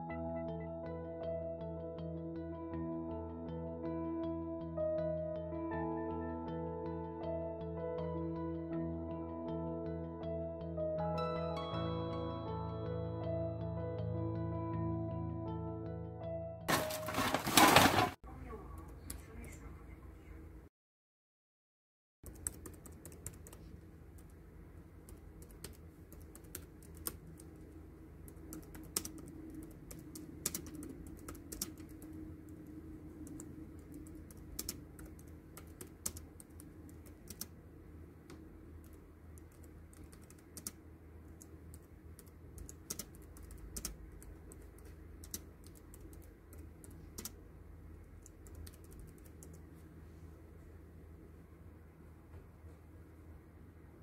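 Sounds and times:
keyboard typing clicks: 22.3 - 24.4, 25.1 - 27.6, 28.3 - 37.6, 38.8 - 47.4, 48.2 - 49.6
steady low hum: 22.3 - 54.0.

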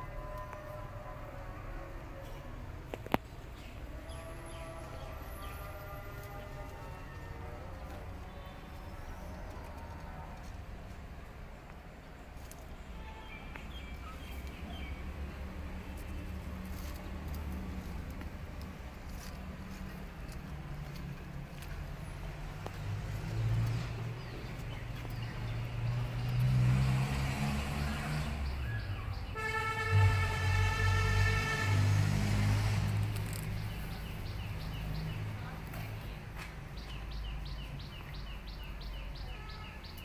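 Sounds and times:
vehicle engine rumbling: 0.0 - 39.9
vehicle horn blast: 13.0 - 13.5, 29.2 - 32.9.

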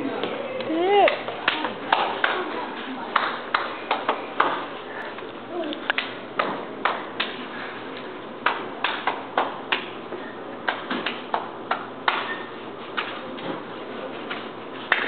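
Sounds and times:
hand claps: 0.2 - 4.7, 5.9 - 7.4, 8.4 - 10.0, 10.6 - 12.4, 14.3 - 15.0.

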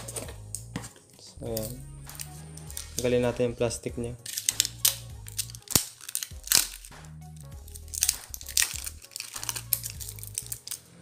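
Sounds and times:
background music with bass: 0.0 - 11.0
plastic wrapping crinkling: 4.2 - 11.0.

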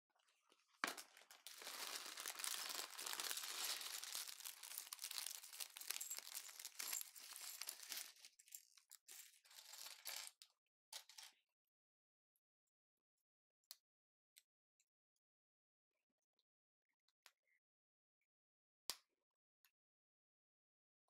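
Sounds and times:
plastic bag crinkling: 0.9 - 8.4.

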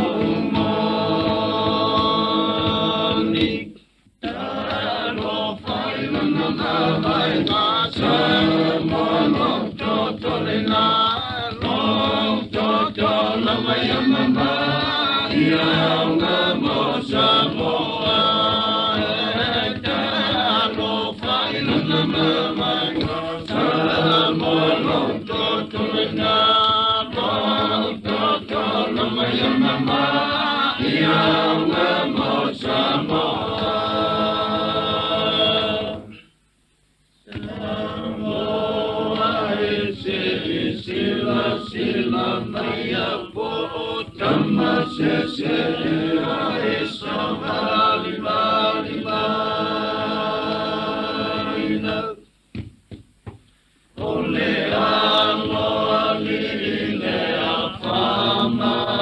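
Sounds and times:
choir singing: 0.0 - 36.2, 37.3 - 52.2, 54.0 - 59.0.

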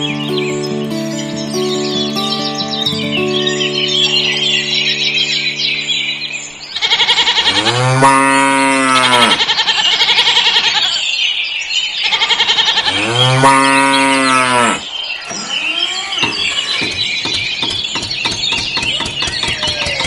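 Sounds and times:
cow mooing: 6.8 - 9.5, 12.8 - 14.9.

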